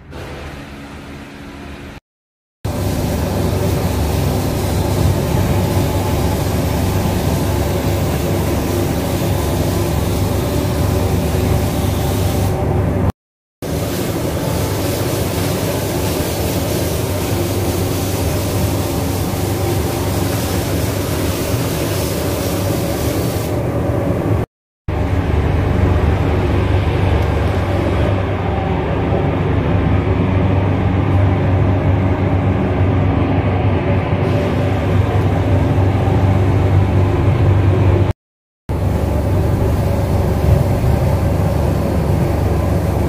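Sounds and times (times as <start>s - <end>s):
ventilation drone: 0.0s - 2.0s, 2.7s - 43.0s
spray gun hissing: 2.7s - 12.7s, 13.6s - 23.7s.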